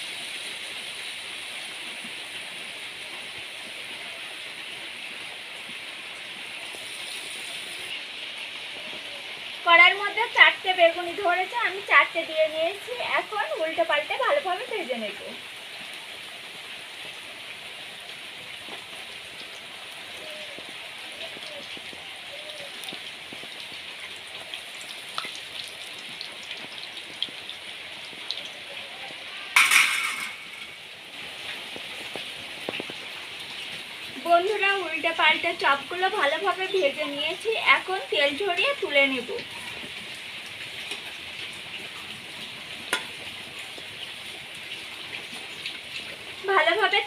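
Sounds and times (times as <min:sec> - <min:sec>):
deep-frying sizzle with crackles: 0:00.0 - 0:47.0
oil popping: 0:24.8 - 0:27.5, 0:29.6 - 0:30.9.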